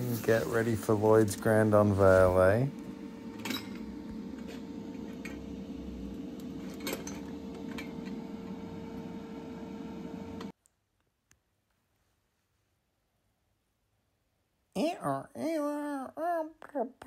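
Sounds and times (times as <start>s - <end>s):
workshop hum: 0.0s - 10.6s.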